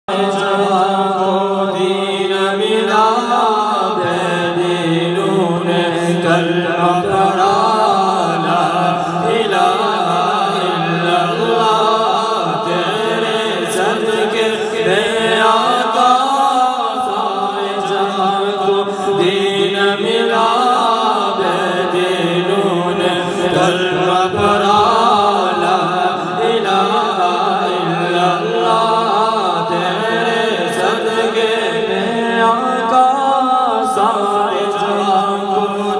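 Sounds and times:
men singing through loudspeakers: 0.0s - 35.9s.

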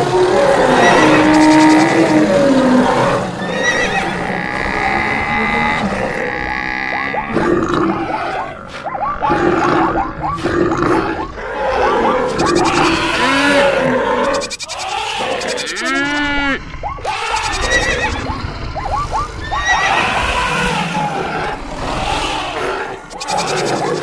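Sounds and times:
animal calls: 0.0s - 24.0s
horse whinnying: 3.0s - 7.4s
short rising and falling calls: 14.2s - 16.3s.

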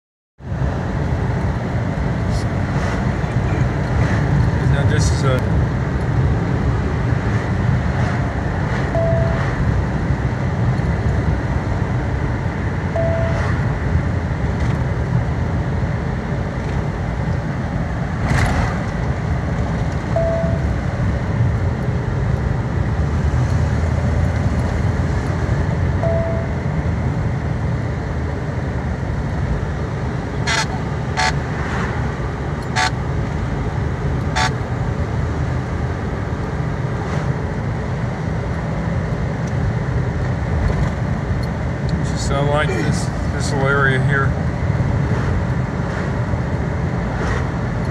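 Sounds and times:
vehicle cabin road rumble: 0.4s - 47.9s
faint short beeps: 9.0s - 9.4s, 12.9s - 13.5s, 20.2s - 20.7s, 26.0s - 26.6s.

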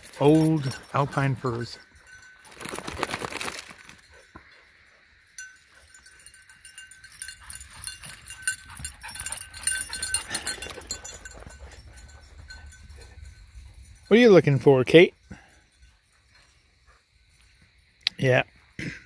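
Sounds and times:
dog panting rapidly: 7.2s - 13.3s.

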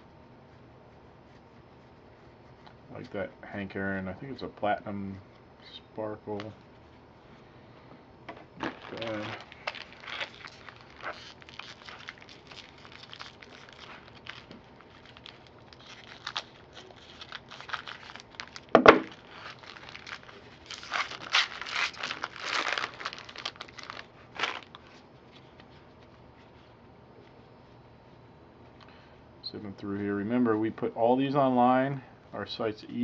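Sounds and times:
wrappers crinkling and tearing: 8.6s - 25.0s
thump: 18.8s - 19.1s.

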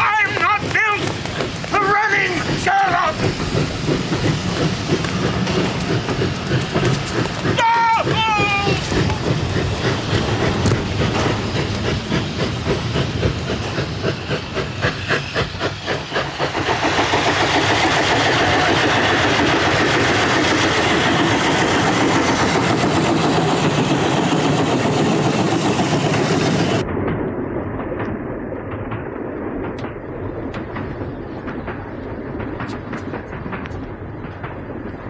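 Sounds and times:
rush of steam: 0.0s - 26.9s
steam locomotive chuffing: 0.0s - 26.9s, 29.8s - 35.0s
train rumble: 0.0s - 35.0s.

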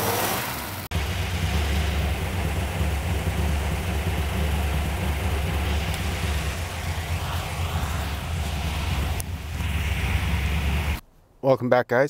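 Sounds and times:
car engine idling: 0.1s - 11.0s.

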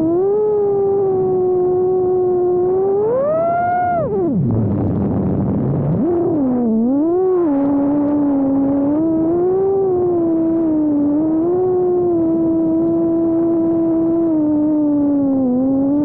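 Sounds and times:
drone motors whining: 0.0s - 16.0s.

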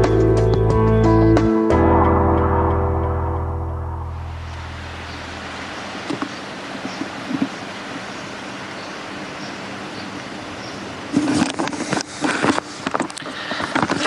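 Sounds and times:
rushing wind and water: 3.9s - 14.0s.

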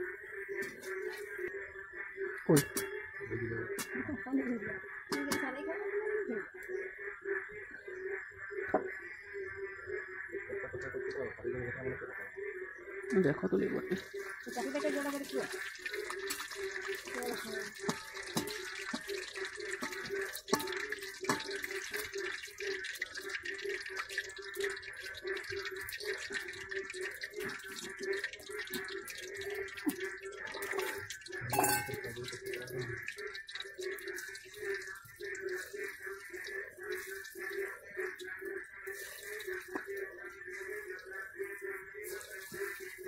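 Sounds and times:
food sizzling in hot oil: 13.7s - 43.0s
metal utensils clattering: 31.5s - 32.1s.

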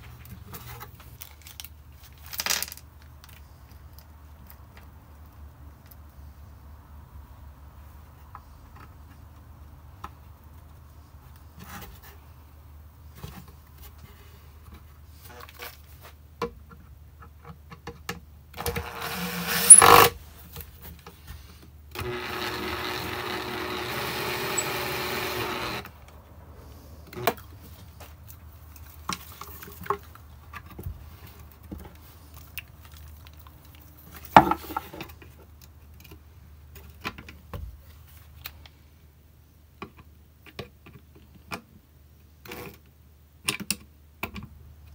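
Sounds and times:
cordless drill running: 18.8s - 20.1s, 21.9s - 26.0s.

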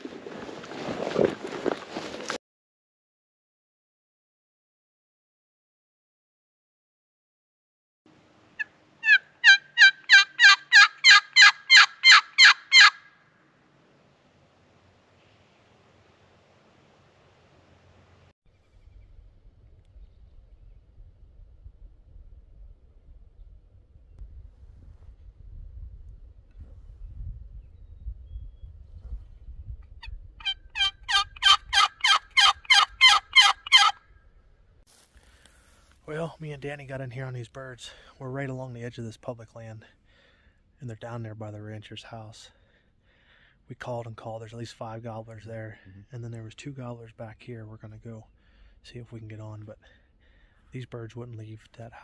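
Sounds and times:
turkey box call yelps: 8.6s - 13.2s, 30.4s - 34.0s.

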